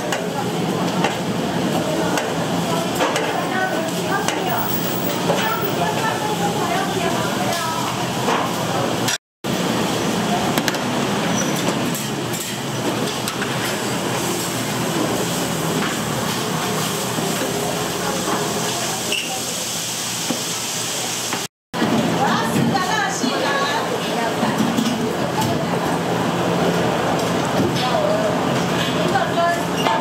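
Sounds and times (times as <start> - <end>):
people talking: 0.0 - 9.2, 15.8 - 19.8, 21.8 - 30.0
kitchen hiss: 13.6 - 21.5.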